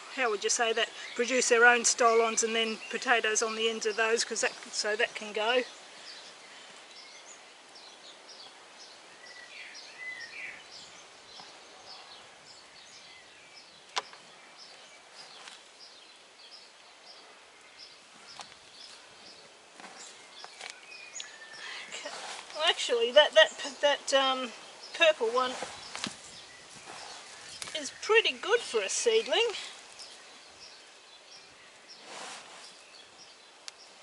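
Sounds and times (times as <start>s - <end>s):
lower warbling bird calls: 20.0s - 29.4s
hand digging through potting mix: 21.9s - 23.5s, 25.0s - 30.0s, 32.0s - 32.9s.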